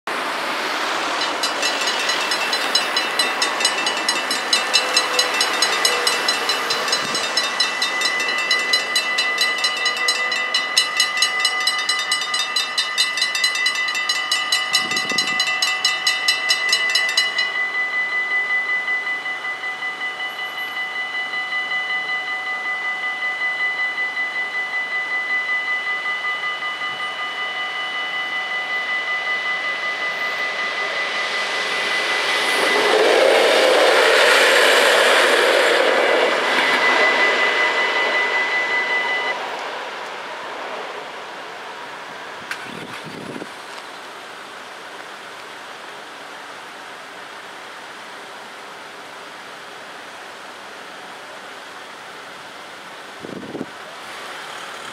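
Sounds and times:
cars passing: 0.1s - 21.0s, 26.3s - 44.1s
level crossing bells ringing: 1.0s - 39.4s.

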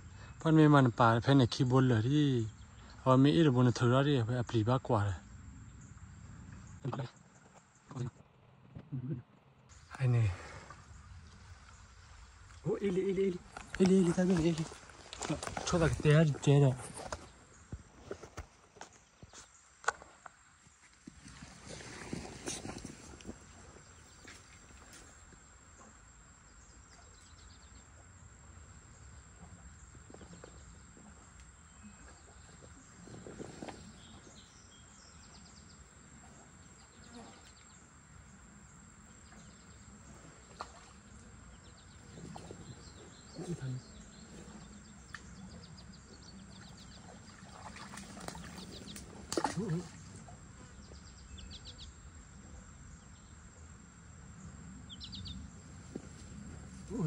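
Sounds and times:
low steady background hiss: 0.0s - 21.5s, 22.1s - 57.0s
rustling in grass: 20.8s - 25.2s
bird chirping: 54.9s - 55.5s.

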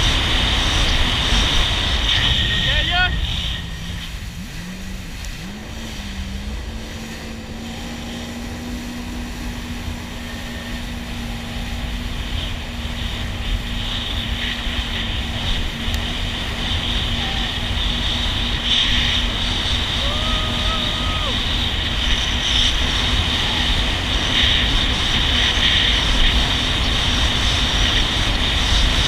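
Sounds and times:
jet ski engine running: 0.0s - 29.0s
rushing water and spray: 0.0s - 29.0s.

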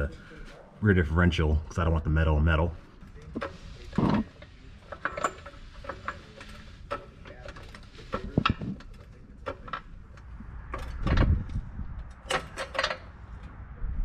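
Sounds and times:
floor jack clicking and clunking: 3.3s - 13.1s.

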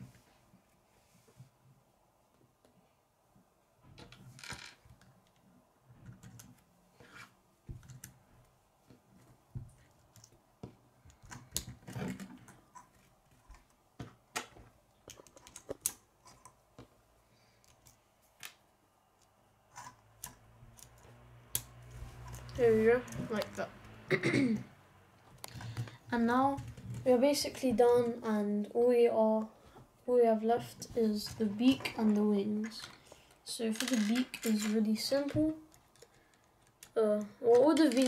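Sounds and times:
plastic pieces clicking together: 11.1s - 13.7s, 14.3s - 16.5s, 33.7s - 38.0s.

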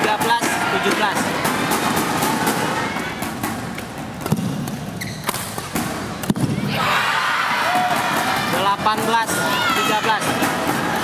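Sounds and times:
spectators' voices: 0.0s - 4.2s, 6.4s - 11.0s
rackets striking shuttlecock: 0.0s - 6.6s.

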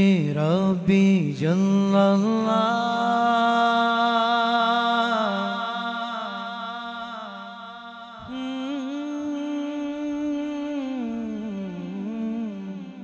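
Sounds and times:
man singing long notes unaccompanied: 8.2s - 13.0s.

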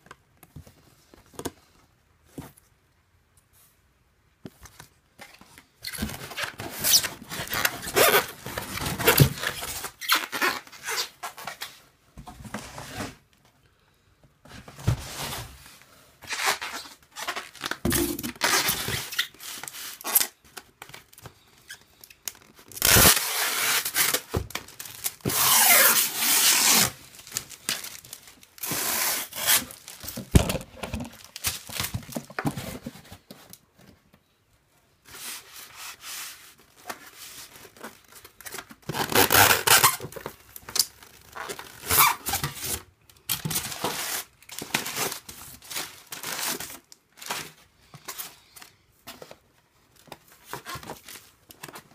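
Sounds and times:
styrofoam scraping and squeaking: 5.8s - 11.7s, 16.2s - 20.4s, 21.5s - 33.3s, 35.1s - 42.8s, 43.4s - 48.5s
cardboard rustling: 17.2s - 34.1s.

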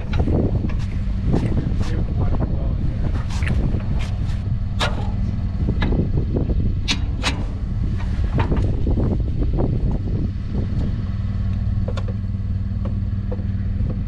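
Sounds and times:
pickup truck idling: 0.0s - 14.0s
metal clinks of trailer hitching: 4.6s - 9.0s.

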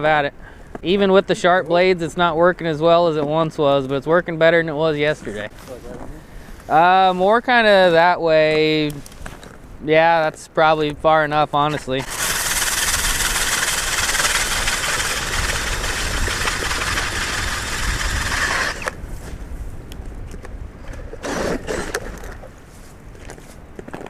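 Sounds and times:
power ice auger drilling: 11.9s - 19.0s, 21.2s - 22.2s.

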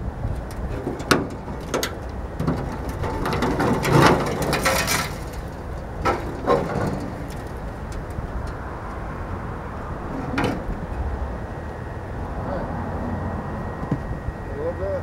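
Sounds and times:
sheet metal grating and tearing: 0.6s - 7.6s.

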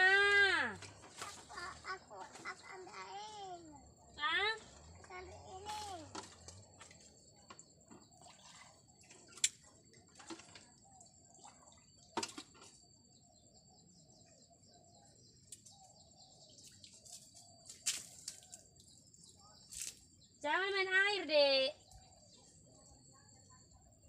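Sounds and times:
faint bird chirps: 0.3s - 20.5s, 21.4s - 24.0s
light water splashes: 4.6s - 12.8s, 16.6s - 19.0s.

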